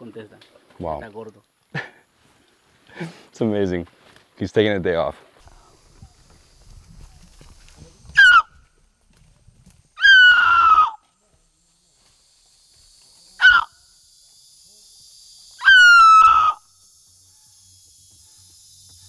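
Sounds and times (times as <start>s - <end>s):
man imitating monkey calls: 8.1s - 8.5s, 10.0s - 11.0s, 13.4s - 13.8s, 15.6s - 16.7s.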